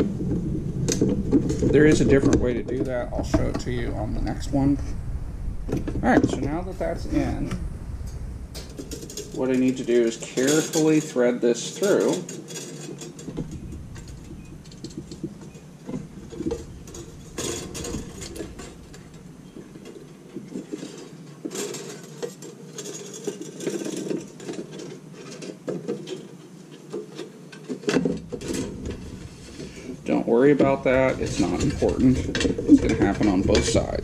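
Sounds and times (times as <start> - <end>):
wire scraping and clicking on metal: 7.1 - 34.0.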